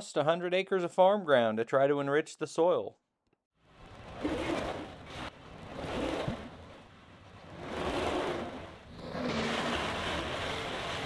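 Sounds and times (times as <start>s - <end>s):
diesel engine revving: 4.1s - 11.0s.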